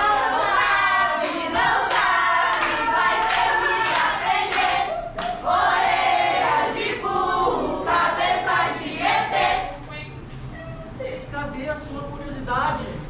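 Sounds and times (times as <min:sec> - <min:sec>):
group singing: 0:00.0 - 0:09.8
hand claps: 0:01.2 - 0:05.4.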